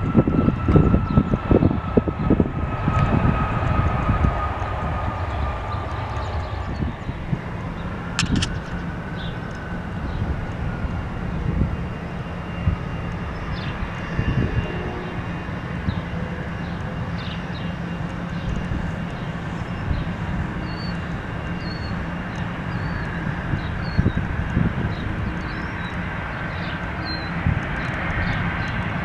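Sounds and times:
distant jet engine rumble: 0.0s - 29.0s.

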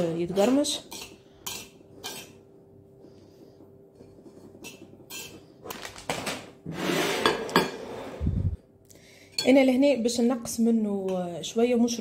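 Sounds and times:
metal spoon scraping ceramic plate: 0.0s - 2.4s, 4.5s - 5.5s, 6.7s - 8.2s.

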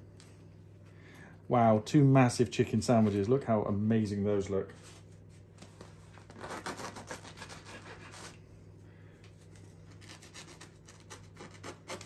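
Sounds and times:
knife sawing through crusty bread: 6.3s - 8.4s, 10.0s - 12.0s.

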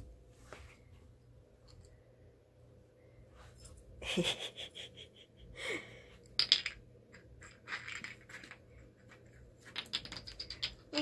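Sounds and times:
bottle cap clattering on wooden floor: 6.2s - 8.6s, 9.6s - 10.9s.

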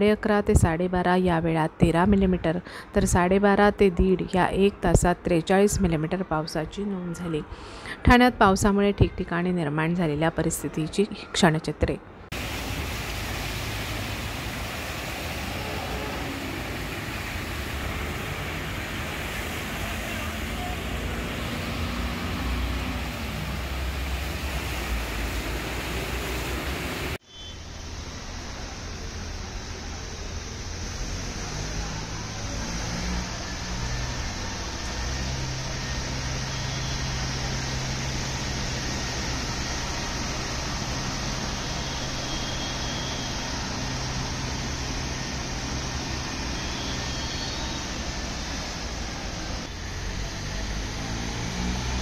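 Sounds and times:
flooded street noise: 0.0s - 52.0s
vehicle engine rumble: 12.2s - 52.0s
water washing under wheels: 12.3s - 52.0s.

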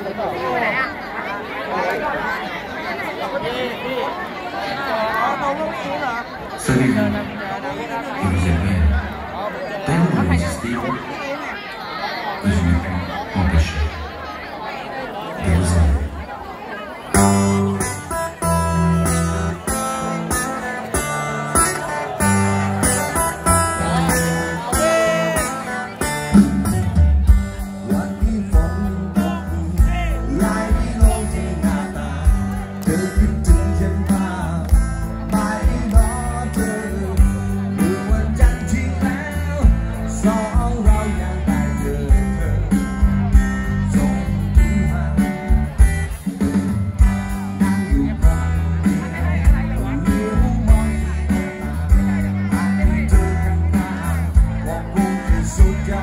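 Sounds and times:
bass guitar: 17.1s - 56.0s
strummed acoustic guitar: 17.1s - 56.0s
drum kit: 17.2s - 56.0s
lead vocal singing: 27.8s - 42.8s, 49.8s - 56.0s.

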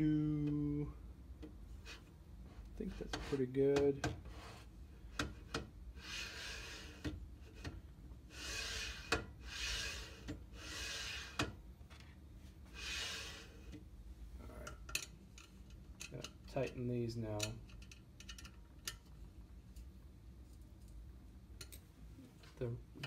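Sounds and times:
linear bearings sliding with hiss: 6.0s - 7.7s, 8.3s - 11.5s, 12.7s - 13.7s.

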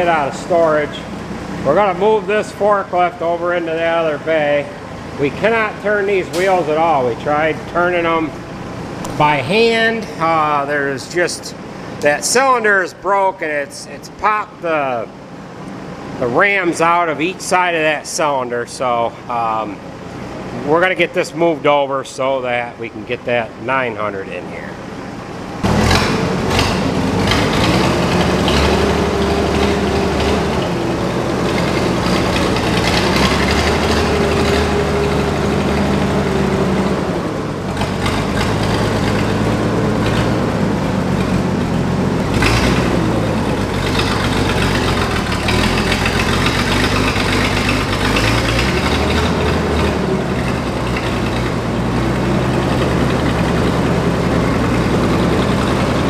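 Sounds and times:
forklift engine revving: 0.0s - 11.0s, 24.8s - 56.0s.

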